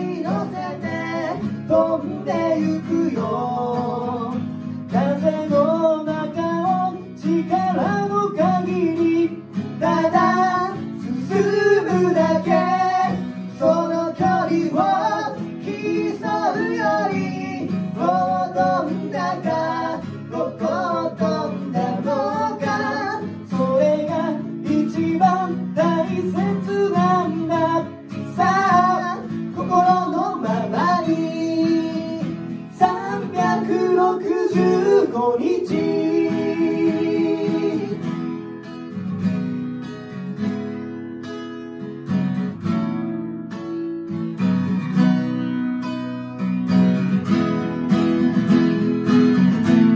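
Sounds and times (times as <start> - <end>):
two men singing: 0.0 - 38.2
acoustic guitars strumming: 0.0 - 49.9.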